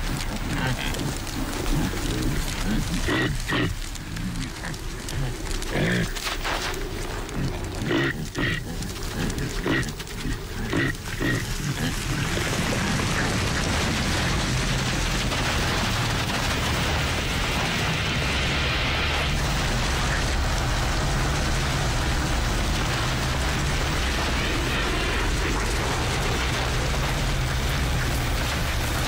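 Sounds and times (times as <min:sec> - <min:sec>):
caribou grunting: 0:00.0 - 0:15.1
steady rushing noise: 0:00.0 - 0:29.0.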